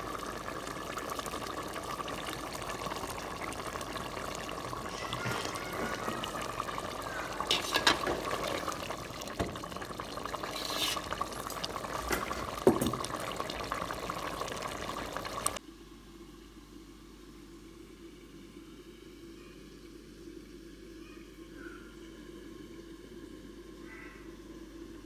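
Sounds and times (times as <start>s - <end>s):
bubbles popping: 0.0s - 15.6s
curry boiling in a pot: 0.0s - 15.6s.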